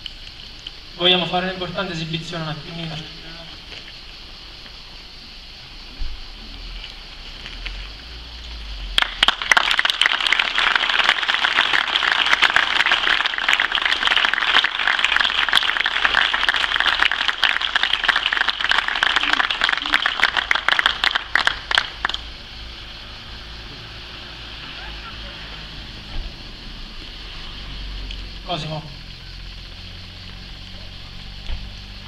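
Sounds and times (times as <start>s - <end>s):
crowd applauding: 8.9s - 22.4s.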